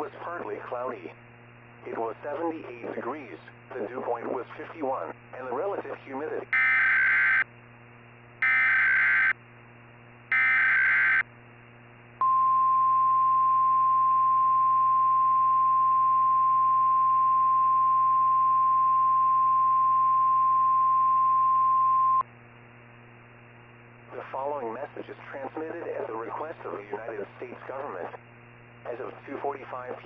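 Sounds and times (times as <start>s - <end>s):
steady single-pitch alert tone: 10.3s - 11.2s.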